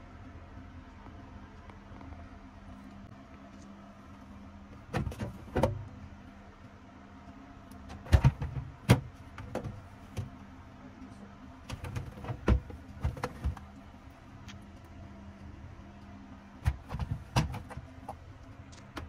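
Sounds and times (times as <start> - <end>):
plastic drawer clacking: 4.9 - 5.9, 7.9 - 10.3, 11.7 - 13.7, 16.6 - 17.9.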